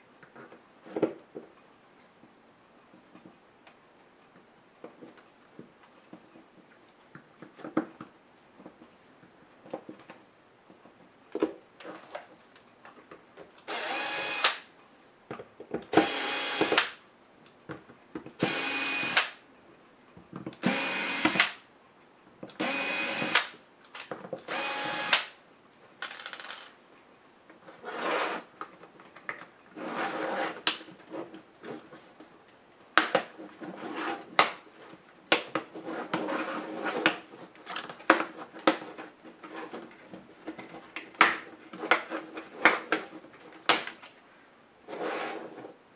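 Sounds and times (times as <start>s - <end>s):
electric screwdriver whirring: 13.7s - 14.6s, 15.9s - 16.9s, 18.4s - 19.4s, 20.6s - 21.5s, 22.6s - 23.5s, 24.5s - 25.3s
plastic parts clicking and knocking: 26.0s - 26.8s.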